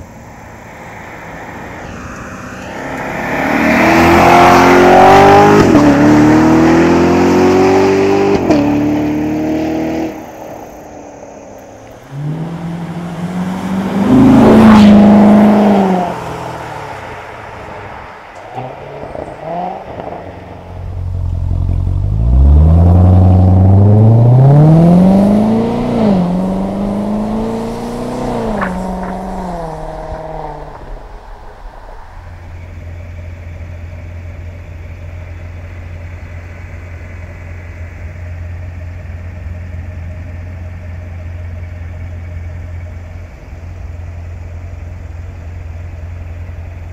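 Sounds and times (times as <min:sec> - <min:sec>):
sports car accelerating past: 0:00.6 - 0:10.7, 0:11.9 - 0:33.8
car engine idling: 0:10.1 - 0:46.9.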